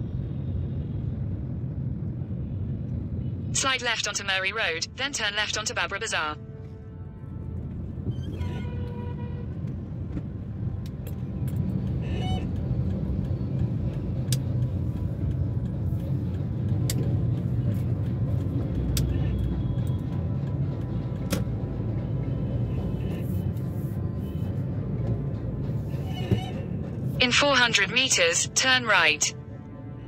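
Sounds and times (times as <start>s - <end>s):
traffic engines and tyres rumbling: 0.0s - 30.0s
car horns: 6.4s - 9.8s.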